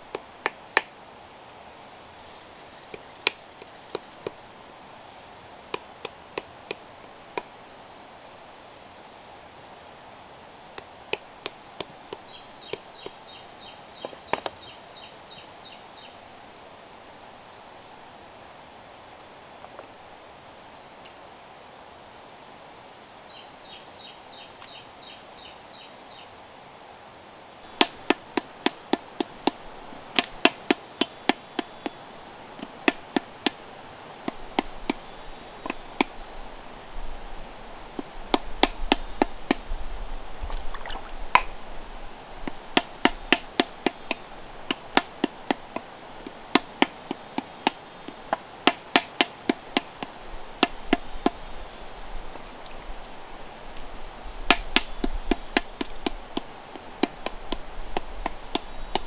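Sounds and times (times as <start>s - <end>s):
wooden paddle slapping clay pot: 27.7s - 32.0s, 32.6s - 33.6s, 34.2s - 36.3s, 37.9s - 39.7s, 42.4s - 51.6s, 54.5s - 59.0s.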